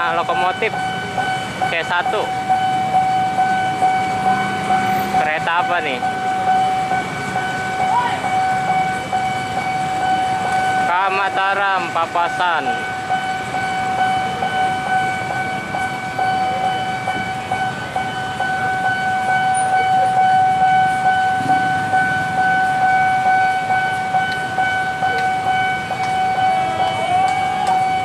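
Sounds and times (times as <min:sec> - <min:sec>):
diesel locomotive rumbling: 0:00.0 - 0:28.0
level crossing alarm tone: 0:00.0 - 0:28.0.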